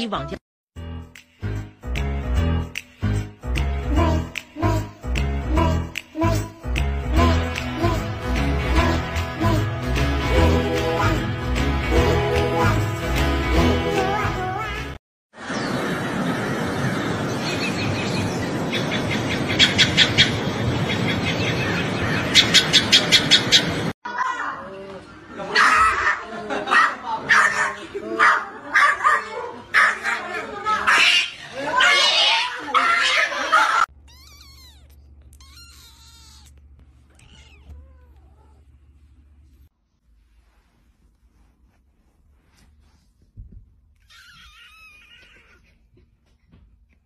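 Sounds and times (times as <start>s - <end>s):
kitten meowing: 34.0s - 38.6s, 44.0s - 45.6s.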